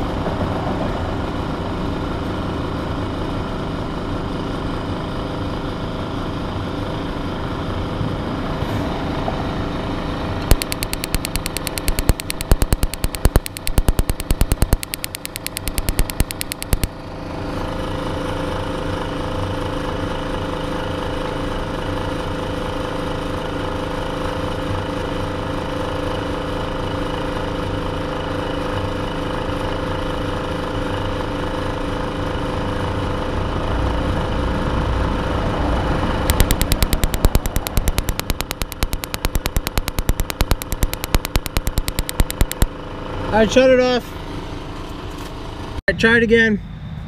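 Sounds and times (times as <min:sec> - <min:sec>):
spark igniter ticking: 0:10.5 - 0:16.9, 0:36.3 - 0:42.7.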